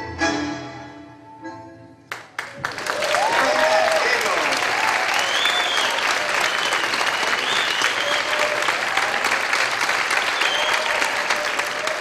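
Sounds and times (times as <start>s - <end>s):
audience applauding: 2.1s - 12.0s.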